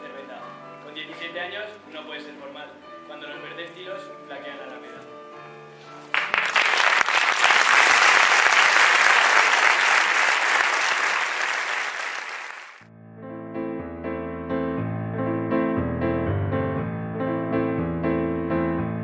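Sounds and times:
piano music: 0:00.0 - 0:11.3, 0:12.8 - 0:19.0
audience applauding: 0:06.1 - 0:12.8.

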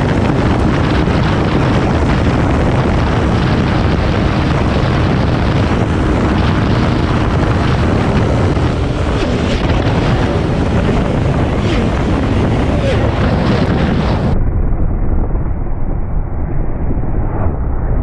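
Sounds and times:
motorcycle engine running: 0:00.0 - 0:14.4
wind rush over microphone: 0:00.0 - 0:18.0.

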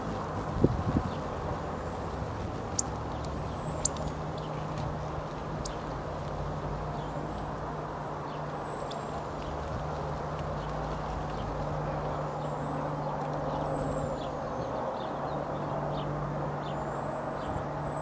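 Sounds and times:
distant traffic rumble: 0:00.0 - 0:18.0
sharp ticks: 0:02.7 - 0:04.5.

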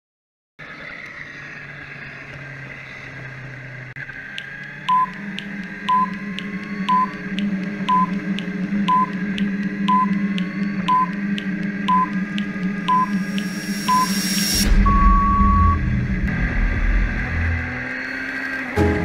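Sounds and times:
synth drone: 0:00.6 - 0:19.0
light electronic ticks: 0:04.0 - 0:14.6
short high beeps: 0:12.9 - 0:15.8.

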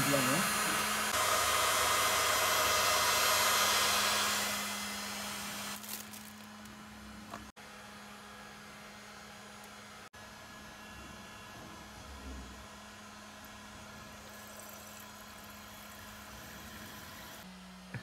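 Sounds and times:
heat gun blowing: 0:00.0 - 0:06.6
plastic wrapping rustling: 0:05.7 - 0:06.9.

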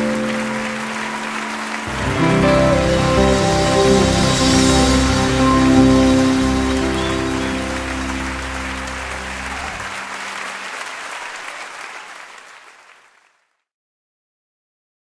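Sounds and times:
band final chord: 0:00.0 - 0:10.1
audience applauding: 0:00.0 - 0:13.5.

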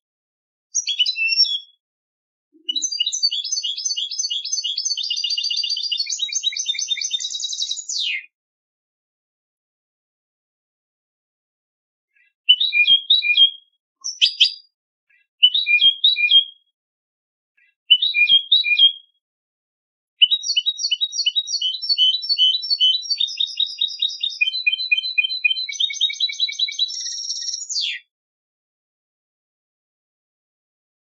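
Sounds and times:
goldfinch singing: 0:00.8 - 0:01.8, 0:02.6 - 0:08.2, 0:12.5 - 0:14.7, 0:20.2 - 0:28.0.

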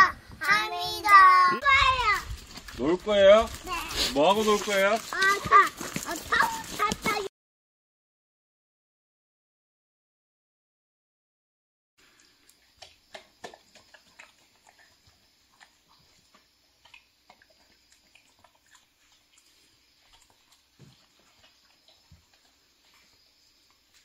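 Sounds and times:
dog licking and chewing: 0:12.5 - 0:24.0.

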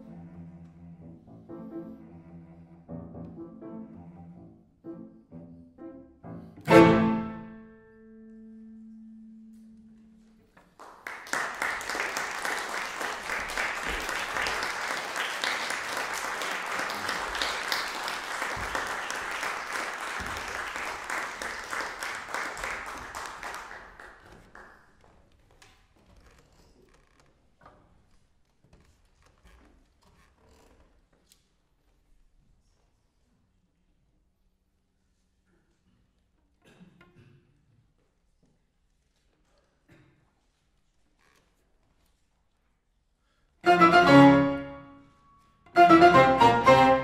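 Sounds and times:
cello and piano: 0:00.0 - 0:10.1, 0:43.6 - 0:45.1, 0:45.7 - 0:47.0
audience applause: 0:10.8 - 0:24.8.

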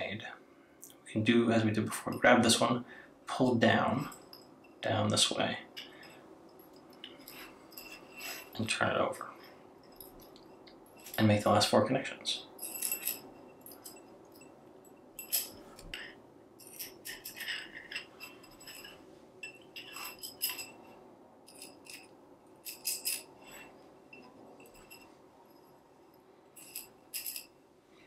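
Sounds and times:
metal tubes clinking together: 0:05.8 - 0:08.8, 0:09.4 - 0:11.4, 0:12.5 - 0:27.6.

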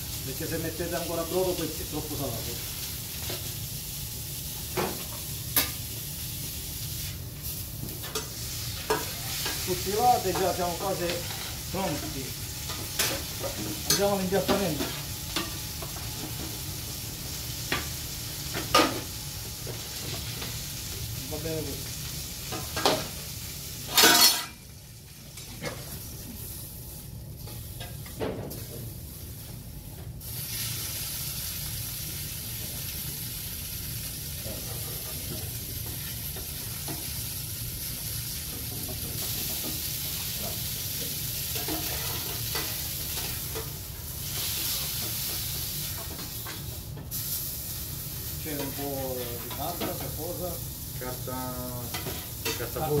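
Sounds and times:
beef sizzling in a hot pan: 0:00.0 - 0:53.0
utensils clanking on pans: 0:07.9 - 0:16.6, 0:22.4 - 0:23.2, 0:23.8 - 0:24.6, 0:38.3 - 0:46.8, 0:48.5 - 0:50.4, 0:51.8 - 0:53.0.

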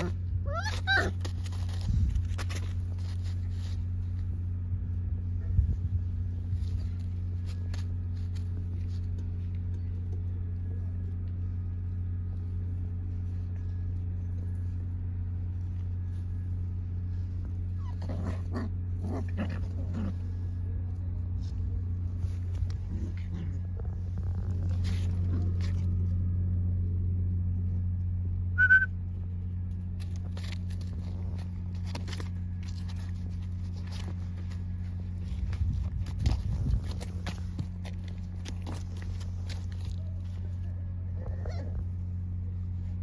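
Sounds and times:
puppies whimpering and yipping: 0:00.0 - 0:01.9, 0:17.7 - 0:19.8, 0:41.2 - 0:41.9
steady low hum: 0:00.0 - 0:43.0.

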